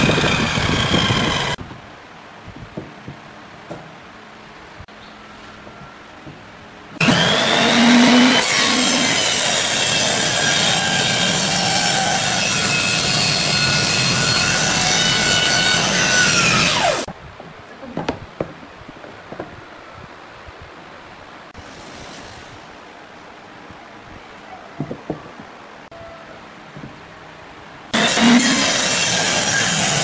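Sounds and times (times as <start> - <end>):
table saw cutting wood: 0.0 - 1.6, 7.0 - 17.1, 28.0 - 30.0
wooden pieces knocking: 17.9 - 19.6.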